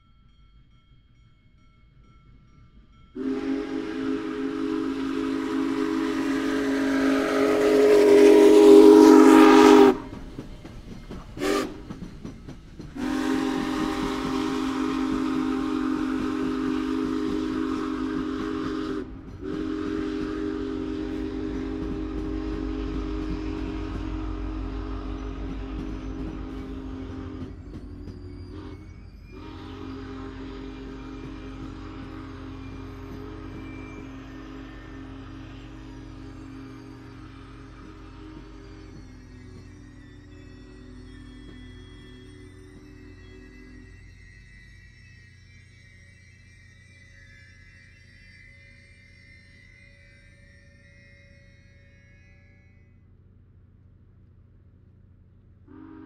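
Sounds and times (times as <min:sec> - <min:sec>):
train rumble: 0:00.0 - 0:56.0
steam whistle blasts: 0:03.2 - 0:10.2, 0:11.4 - 0:11.8, 0:13.0 - 0:27.6, 0:28.5 - 0:39.1, 0:55.7 - 0:56.0.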